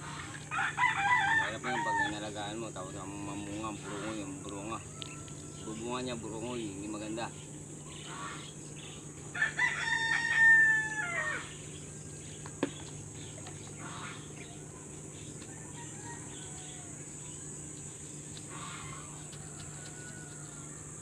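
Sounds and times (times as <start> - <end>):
rooster crowing: 0.0 - 2.7, 3.6 - 6.6, 9.3 - 12.2, 15.4 - 17.4, 18.5 - 21.0
high insect buzz: 0.0 - 21.0.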